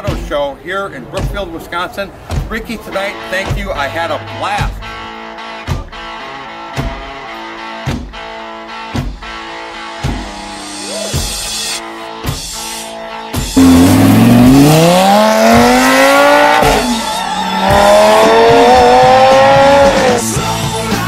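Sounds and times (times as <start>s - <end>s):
rock music: 3.1s - 21.0s
car engine accelerating hard: 13.6s - 20.3s.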